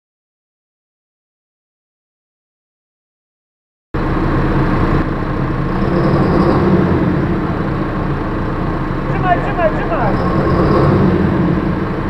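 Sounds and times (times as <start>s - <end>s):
diesel engine idling: 4.0s - 12.0s.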